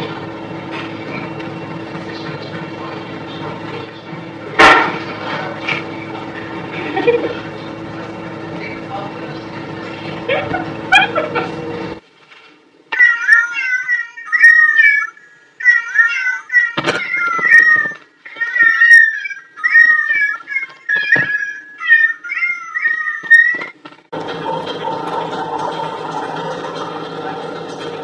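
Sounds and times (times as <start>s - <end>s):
cat meowing: 13.0s - 23.6s.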